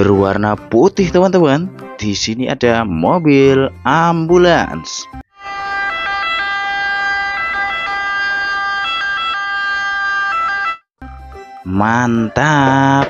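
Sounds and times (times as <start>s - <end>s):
toy ambulance siren: 5.3s - 10.9s.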